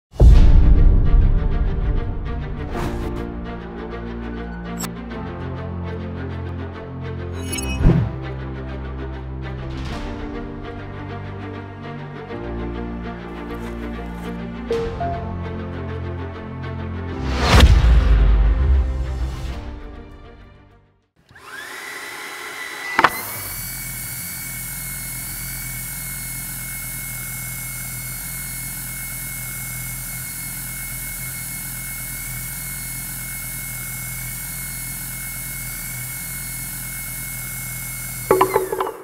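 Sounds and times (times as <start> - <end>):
handheld vacuum whine: 13.2 - 14.5, 21.2 - 39.0.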